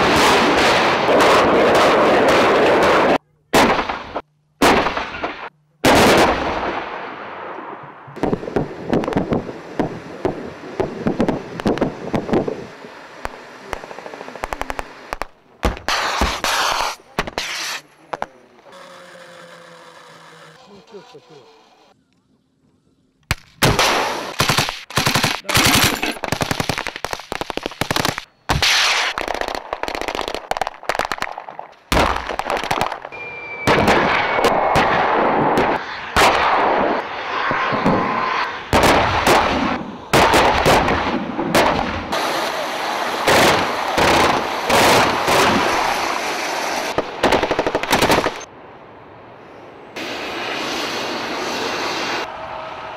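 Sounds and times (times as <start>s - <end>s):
heavy single gunshots: 0.0s - 7.5s
tank gun firing: 0.0s - 7.5s, 31.9s - 36.8s, 38.7s - 42.2s
tracked vehicle engine and tracks: 7.8s - 15.6s, 16.9s - 23.4s, 33.1s - 52.9s.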